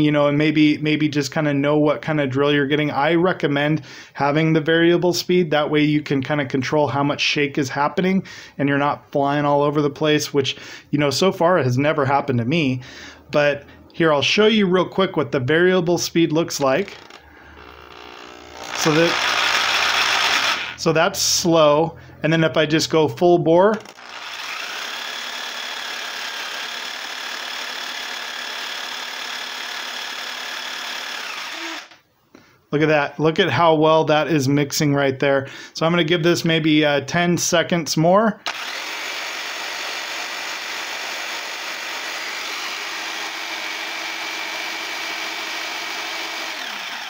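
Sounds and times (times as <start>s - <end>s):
electric drill motor whining: 16.8s - 20.8s, 23.8s - 32.0s, 38.4s - 47.0s.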